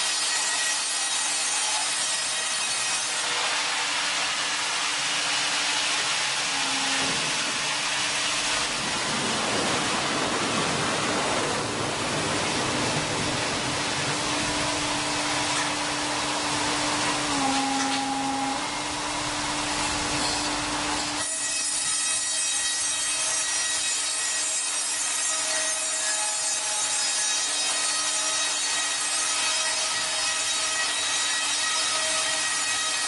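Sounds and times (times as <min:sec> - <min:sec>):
saw rasping through wood: 0:00.0 - 0:08.9, 0:14.1 - 0:33.0.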